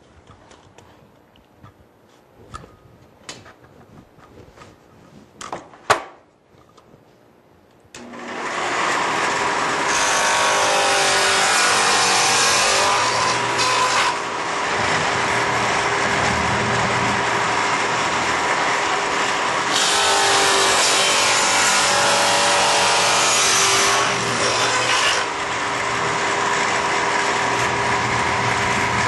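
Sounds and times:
table saw running: 8.0s - 29.0s
saw blade cutting wood: 8.3s - 16.4s, 18.4s - 25.5s.

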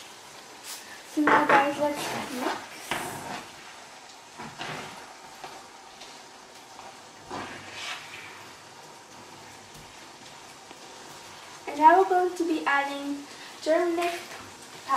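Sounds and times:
faint steady hiss: 0.0s - 14.9s
spoon scraping frying pan: 7.2s - 8.4s.

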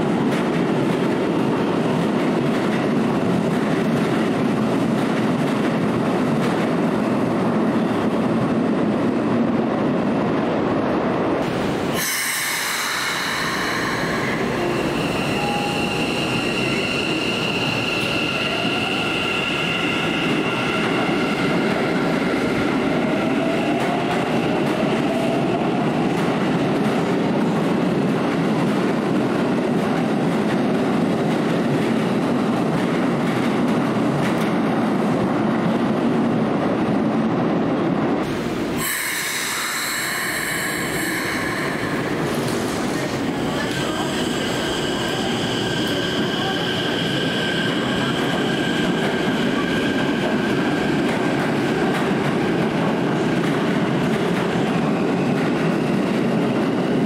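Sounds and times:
electric train rumble: 0.0s - 57.0s
train high-pitched squeal: 12.0s - 22.4s, 38.8s - 42.4s, 43.0s - 50.8s.

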